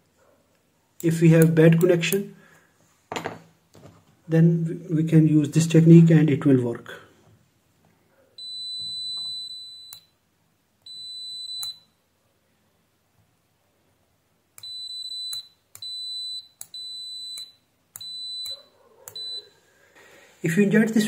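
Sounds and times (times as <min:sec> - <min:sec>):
multimeter beeping: 0:08.4 - 0:10.2, 0:10.8 - 0:12.0, 0:14.6 - 0:19.6.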